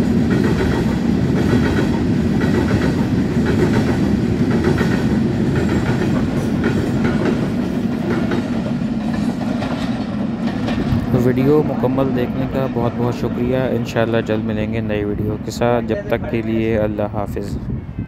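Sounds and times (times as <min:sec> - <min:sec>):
train wheels rumbling on track: 0:00.0 - 0:18.0
wheels clicking over rail joints: 0:00.2 - 0:11.6.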